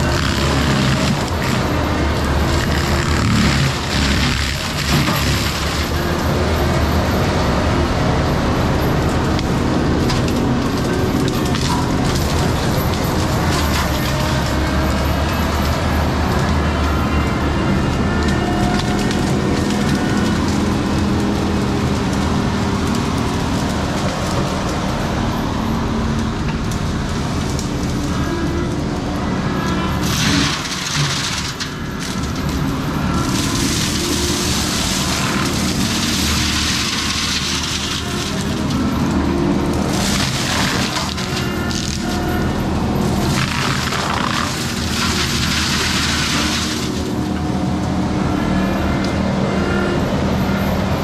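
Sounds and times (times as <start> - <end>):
mulcher crunching wood: 0.0 - 6.8, 26.2 - 47.2
diesel engine running hard: 0.0 - 51.0.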